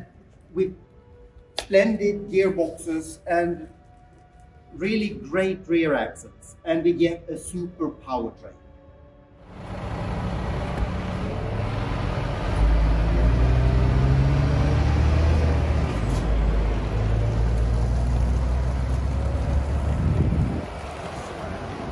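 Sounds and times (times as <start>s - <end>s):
truck diesel engine pulling away: 9.5s - 21.9s.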